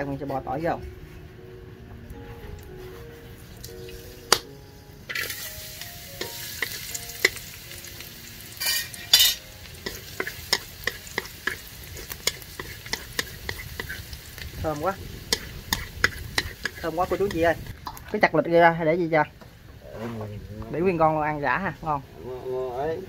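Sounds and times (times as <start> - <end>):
garlic sizzling in hot oil: 3.4 - 18.3
chopsticks clicking on a wok: 9.8 - 14.0.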